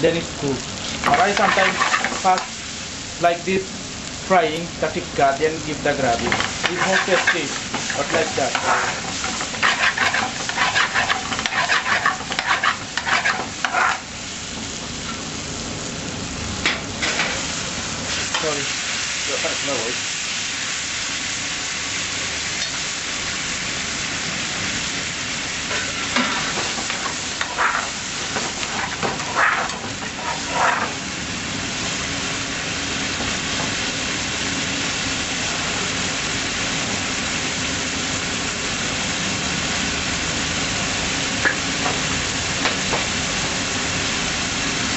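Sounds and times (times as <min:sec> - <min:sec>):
meat sizzling in a frying pan: 0:00.0 - 0:44.9
metal spoon scraping a pan: 0:01.0 - 0:02.5, 0:06.2 - 0:14.1, 0:25.7 - 0:31.0.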